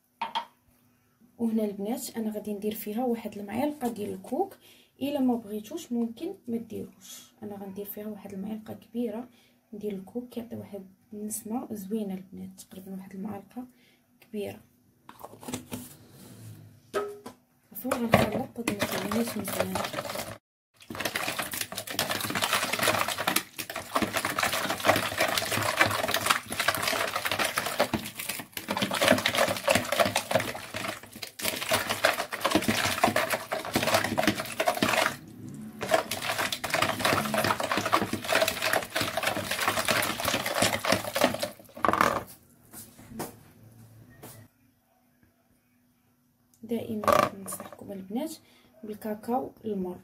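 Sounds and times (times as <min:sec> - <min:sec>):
hand whisk beating in bowl: 0:17.8 - 0:42.1.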